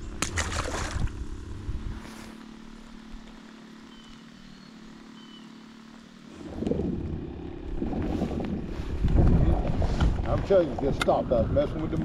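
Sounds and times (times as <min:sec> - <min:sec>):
boat motor humming: 0:00.0 - 0:12.0
fish splashing: 0:00.2 - 0:01.2.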